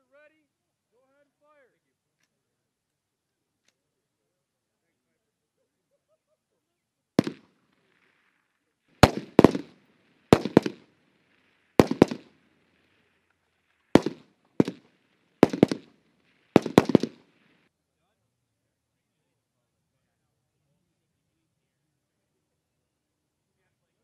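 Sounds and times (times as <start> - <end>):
rifle shots echoing: 7.2 - 8.2, 9.0 - 13.0, 13.9 - 17.6.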